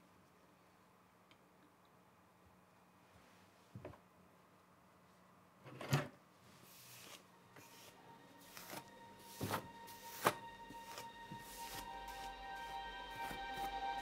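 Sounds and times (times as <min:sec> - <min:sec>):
soft sustained music tone: 0:06.6 - 0:14.0.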